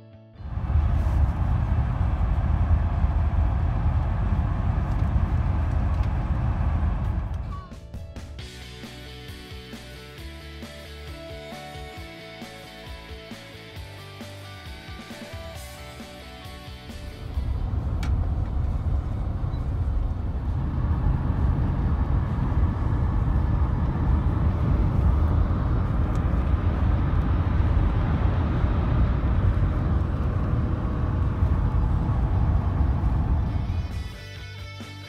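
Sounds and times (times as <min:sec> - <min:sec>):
car road noise from inside: 0:00.4 - 0:07.7, 0:17.0 - 0:34.1.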